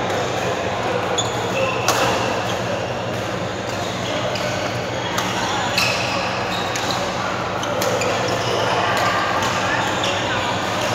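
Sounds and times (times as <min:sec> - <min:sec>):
shoes squeaking on floor: 0:01.2 - 0:01.8, 0:05.6 - 0:08.9.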